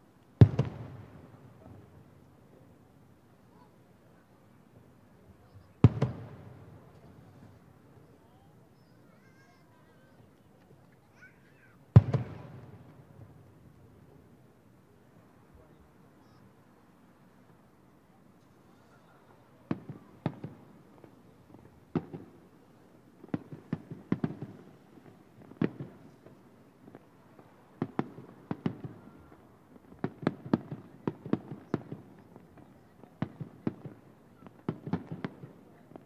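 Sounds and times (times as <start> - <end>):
distant fireworks booming: 0.4 - 2.4, 5.6 - 7.9, 11.9 - 14.1, 19.6 - 22.5, 23.2 - 36.0.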